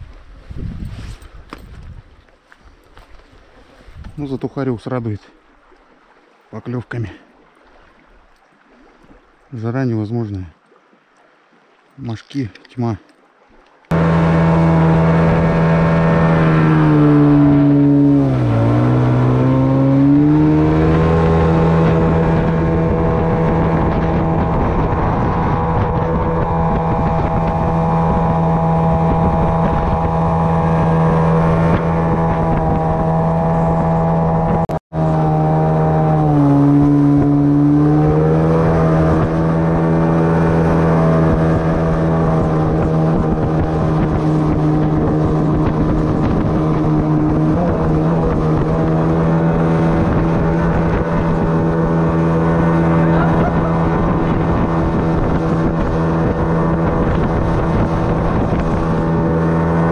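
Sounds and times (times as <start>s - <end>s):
outboard motor boat at speed: 13.6s - 59.9s.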